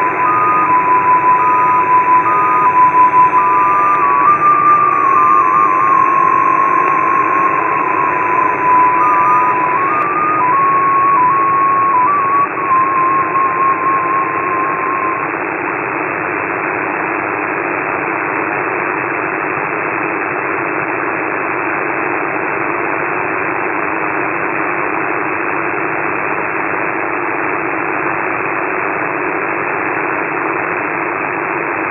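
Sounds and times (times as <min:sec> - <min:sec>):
radio tone hopping pitch: 0:00.0 - 0:16.0.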